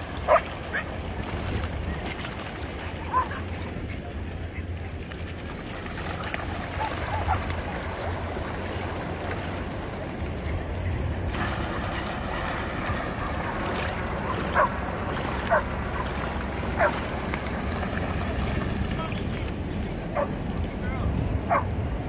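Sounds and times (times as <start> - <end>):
dogs splashing through water: 0.0 - 22.0
surf washing: 0.0 - 22.0
dog barks: 14.3 - 14.8, 16.8 - 17.0, 21.5 - 21.7.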